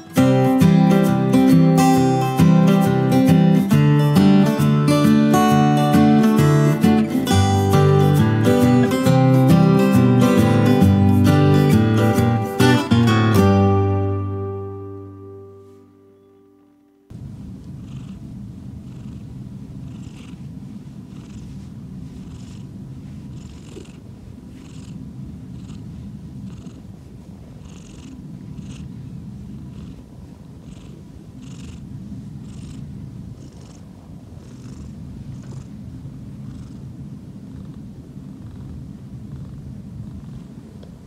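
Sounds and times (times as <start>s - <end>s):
cat purring: 17.1s - 41.0s.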